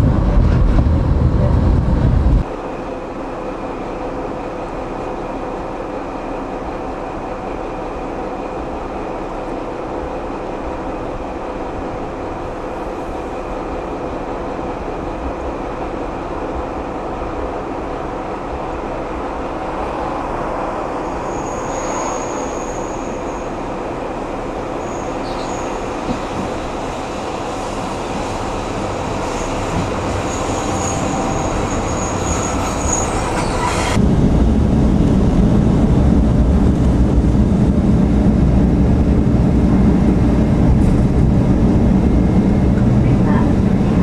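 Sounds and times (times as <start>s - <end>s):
low diesel drone in cab: 0.0s - 21.2s, 33.8s - 44.0s
diesel railcar running: 0.0s - 44.0s
high thin wheel squeals: 21.2s - 23.4s, 30.2s - 34.0s.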